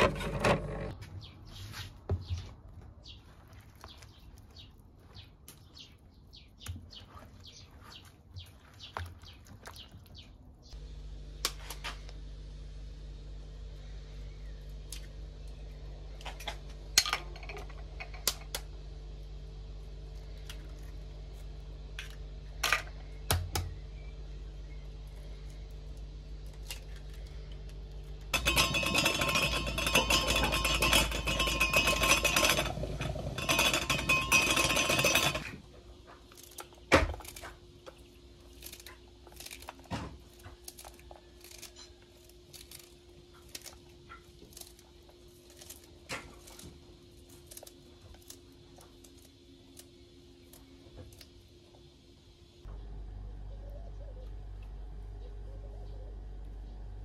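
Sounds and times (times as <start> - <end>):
rapid clinking in a bowl: 28.3 - 35.6.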